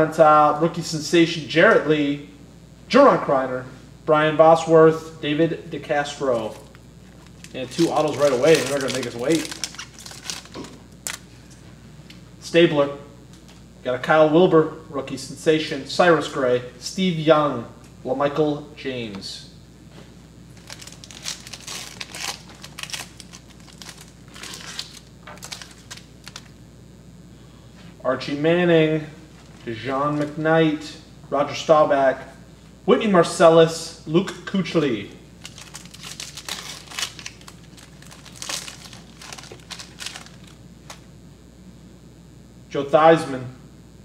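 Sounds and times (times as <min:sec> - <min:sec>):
foil wrapper crinkling: 0:06.3 - 0:11.6, 0:20.5 - 0:26.6, 0:29.3 - 0:30.4, 0:35.4 - 0:41.1.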